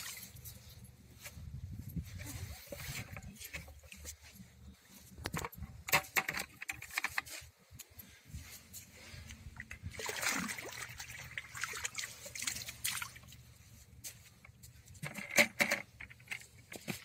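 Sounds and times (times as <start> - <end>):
sharp water splashes: 9.9 - 13.4.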